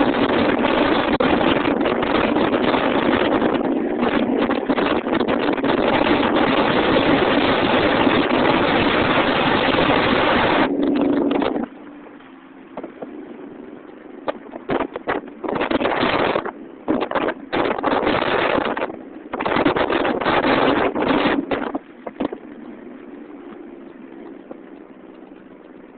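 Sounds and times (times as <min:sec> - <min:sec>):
road noise: 0:00.0 - 0:25.9
wind buffeting microphone: 0:00.0 - 0:25.9.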